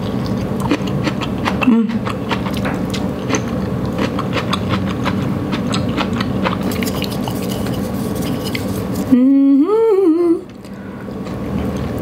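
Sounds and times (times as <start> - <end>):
chewing noodles: 0.0 - 9.1.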